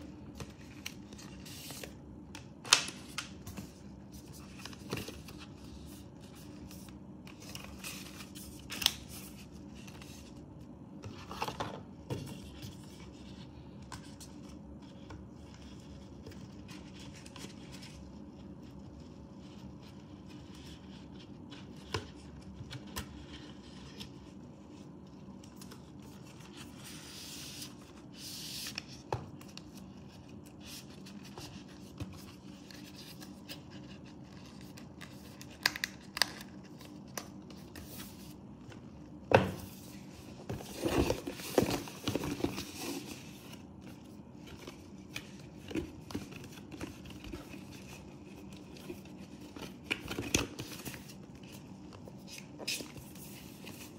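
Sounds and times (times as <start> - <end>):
cardboard boxes scraping and rustling: 39.6 - 43.4.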